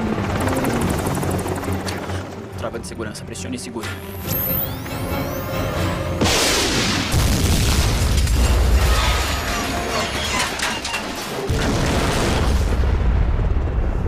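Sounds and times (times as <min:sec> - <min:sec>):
missile launch blast and hiss: 0:06.2 - 0:08.3
low rumbling explosion boom: 0:11.6 - 0:14.0.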